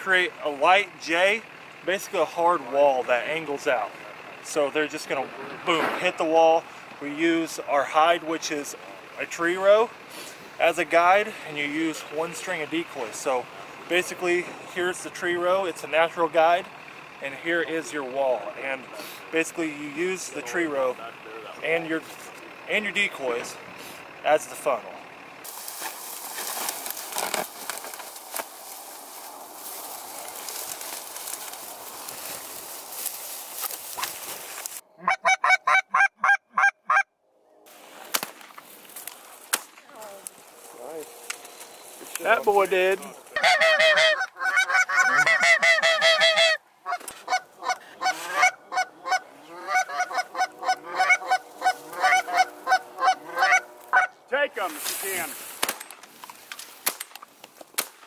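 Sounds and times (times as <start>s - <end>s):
dry grass rustling and crackling: 25.4s - 34.8s, 37.7s - 58.0s
geese honking: 26.8s - 37.1s, 40.4s - 54.3s.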